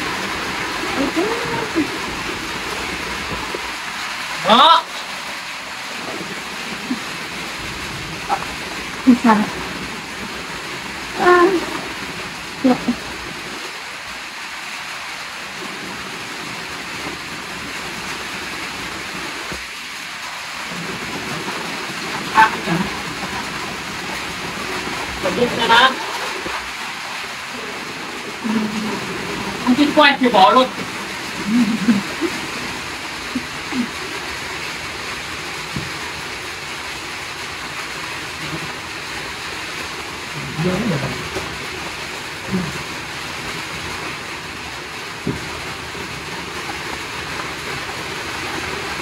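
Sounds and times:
rain on a metal shed: 0:00.0 - 0:49.0.

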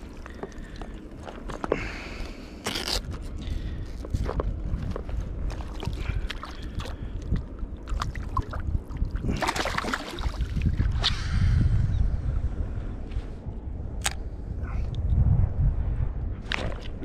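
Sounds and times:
wind rumble on microphone: 0:00.0 - 0:17.0
water splashing: 0:07.9 - 0:11.1.

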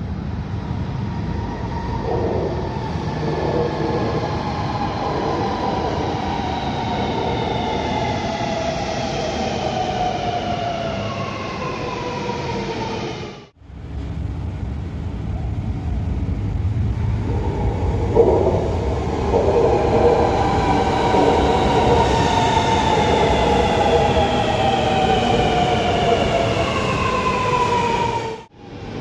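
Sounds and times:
train wheels rumbling on rails: 0:00.0 - 0:12.9, 0:13.6 - 0:29.0.

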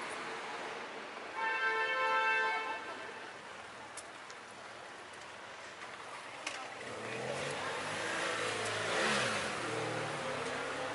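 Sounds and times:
car engine passing: 0:06.8 - 0:10.9.

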